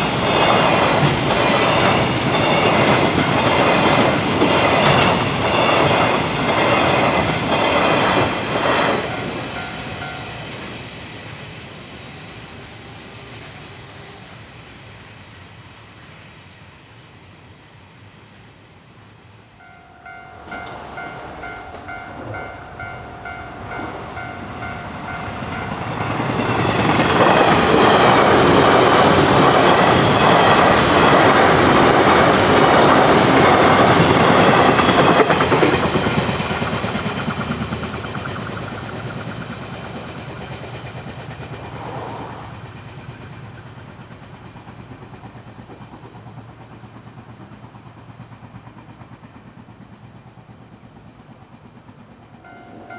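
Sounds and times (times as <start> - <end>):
train passing at speed: 0.0 - 52.9
level-crossing alarm ringing: 9.0 - 10.4, 19.6 - 26.8, 52.4 - 52.9.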